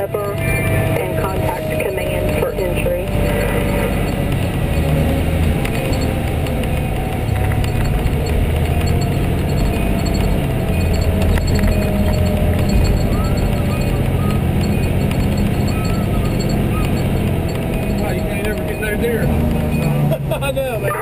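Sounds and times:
diesel engine low rumble: 0.0s - 21.0s.

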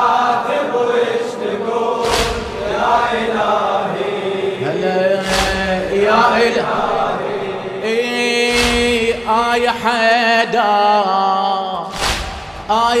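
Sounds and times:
men chanting a lament: 0.0s - 13.0s
hands striking chests: 2.0s - 2.9s, 5.2s - 6.2s.

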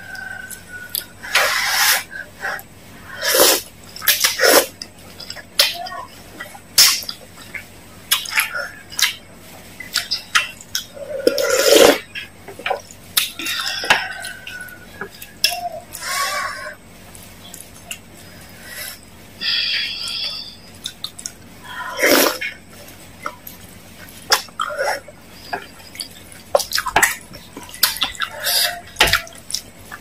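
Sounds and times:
wet chewing and slurping: 3.2s - 16.7s, 20.8s - 30.0s.

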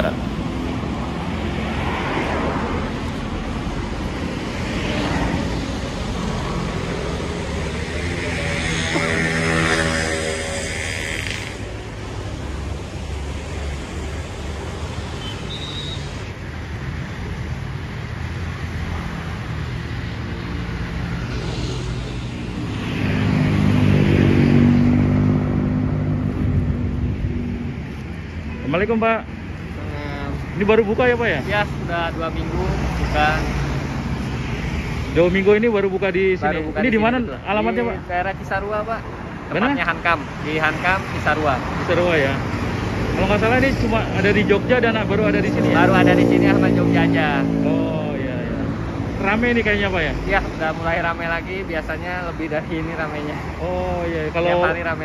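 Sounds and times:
car and motorbike engines rumbling: 0.0s - 55.0s.

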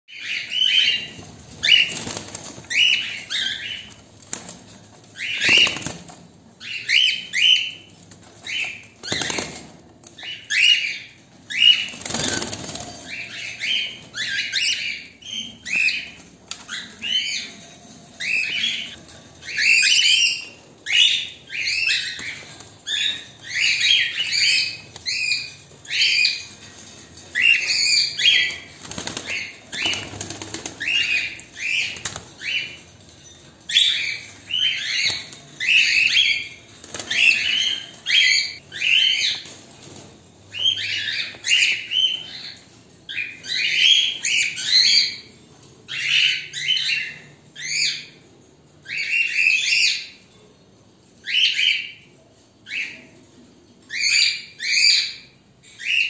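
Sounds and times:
cockatiels screeching: 0.2s - 4.0s, 18.2s - 32.8s, 33.7s - 39.5s
wings flapping: 1.0s - 3.1s, 4.2s - 6.2s, 9.0s - 9.8s, 11.7s - 13.1s, 28.4s - 31.0s.

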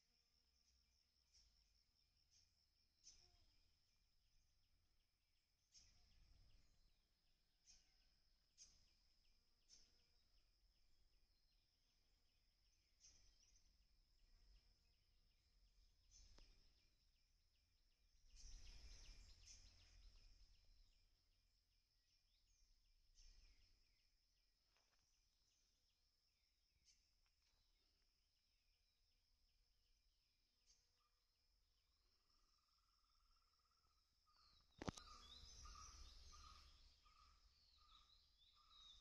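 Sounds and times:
short bird chirps: 18.2s - 20.9s, 32.2s - 39.0s
high-pitched insect trill: 31.9s - 39.0s.

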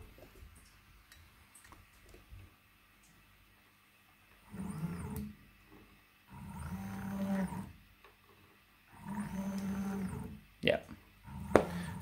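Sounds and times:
motor whine: 4.4s - 5.4s, 6.3s - 7.8s, 8.9s - 10.4s, 11.2s - 12.0s
stepper motor humming: 4.5s - 5.4s, 6.3s - 7.8s, 8.9s - 10.4s, 11.2s - 12.0s.

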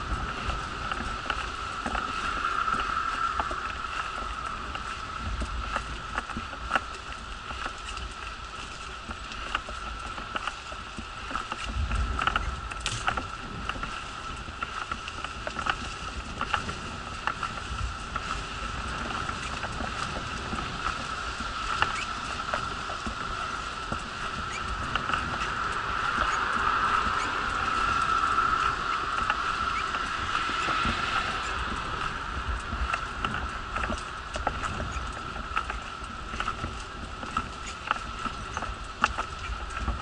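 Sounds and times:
wheelchair rolling with whine: 0.0s - 40.0s
wind rumble on microphone: 0.0s - 40.0s
wheelchair clicks and rattles: 5.4s - 18.4s, 32.6s - 40.0s.

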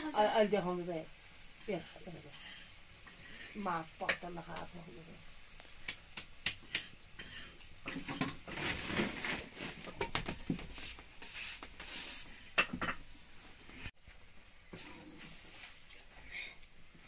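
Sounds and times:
wood fire crackling: 0.0s - 17.0s
hands patting dough on stone: 5.8s - 7.0s.

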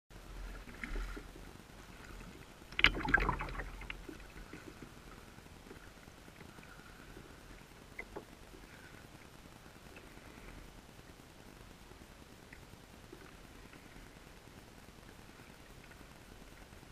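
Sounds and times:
muffled underwater water movement: 0.1s - 16.9s
underwater clicks and bubbling: 0.3s - 10.2s, 12.4s - 14.0s.

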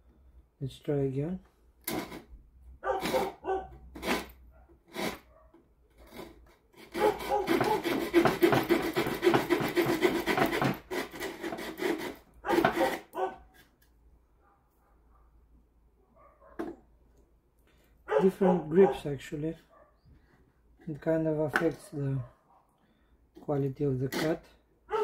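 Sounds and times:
small saw cutting wood: 1.8s - 2.3s, 2.9s - 5.3s, 5.9s - 13.7s, 23.4s - 24.6s.

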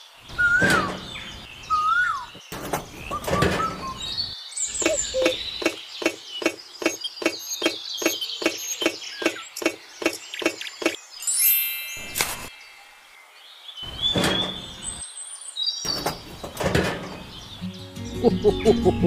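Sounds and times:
birds chirping: 0.0s - 19.0s
sharp knocks: 0.5s - 1.4s.

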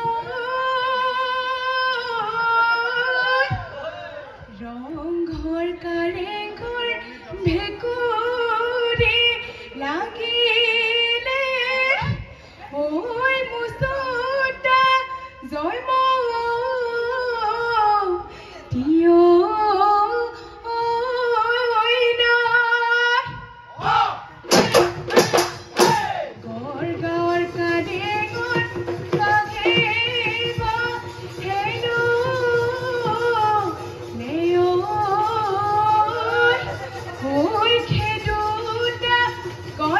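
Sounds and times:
drums beating: 0.0s - 10.5s, 23.2s - 39.9s.

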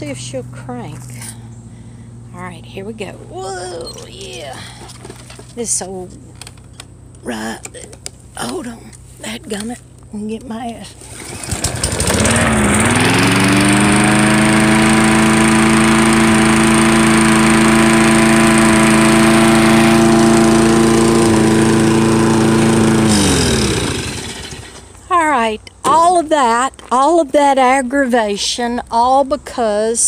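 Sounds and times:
lawn mower engine running: 10.9s - 26.2s.

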